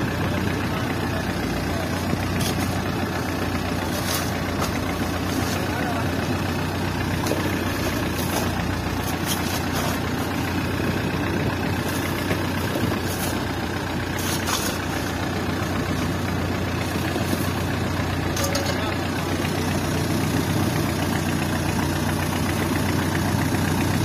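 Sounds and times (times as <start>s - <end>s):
boat engine running: 0.0s - 24.0s
crushed ice rattling: 1.7s - 18.8s.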